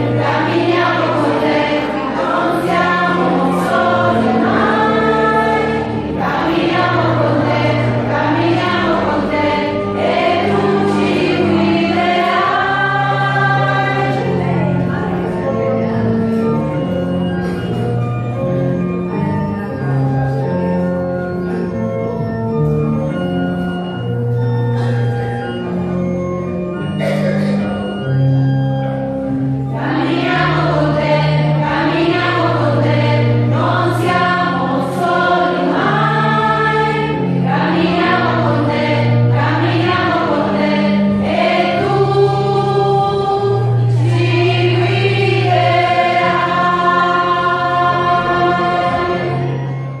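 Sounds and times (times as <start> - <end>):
many voices singing a hymn: 0.0 - 15.6, 29.7 - 50.0
organ chords: 0.0 - 50.0.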